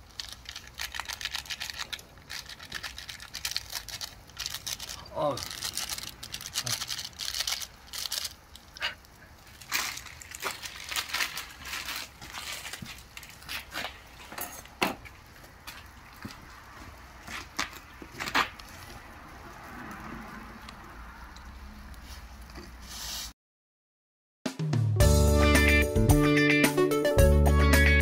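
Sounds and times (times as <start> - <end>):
pot boiling hard: 0.0 - 0.8, 7.0 - 22.8
crackling and popping: 0.0 - 22.8.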